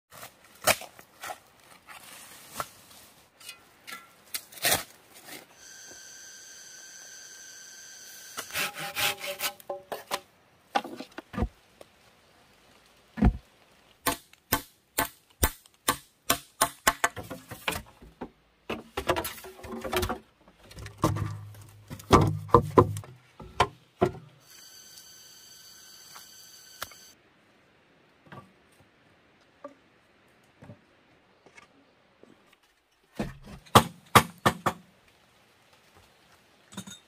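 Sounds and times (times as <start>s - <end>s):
machete chopping bamboo: 14.0s - 17.4s.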